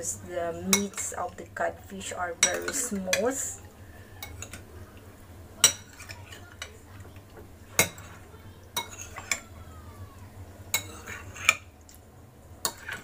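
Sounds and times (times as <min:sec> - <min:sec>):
low steady hum: 0:00.0 - 0:13.0
metal spoon clinking against bowl: 0:02.4 - 0:03.3, 0:08.8 - 0:09.4, 0:10.7 - 0:11.6.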